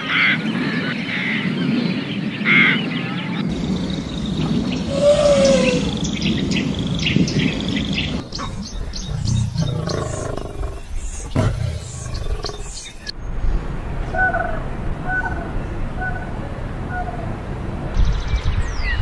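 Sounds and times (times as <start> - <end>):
birds chirping: 0.0 - 17.4
low animal growls: 8.3 - 13.0.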